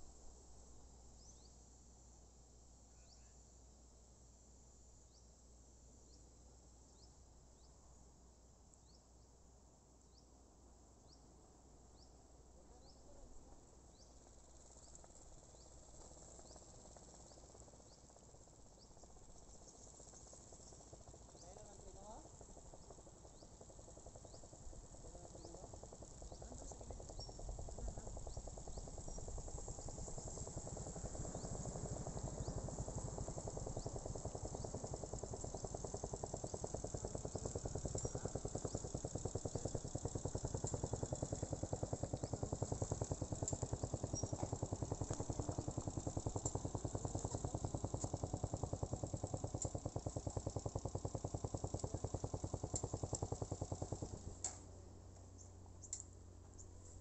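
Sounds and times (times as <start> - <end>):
vehicle engine running: 14.7 - 55.4.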